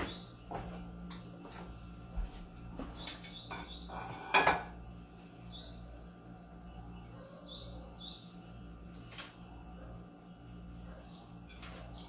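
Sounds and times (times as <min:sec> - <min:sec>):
cutlery clinking on plates: 0:03.1 - 0:04.8
faint bird chirps: 0:05.2 - 0:12.0.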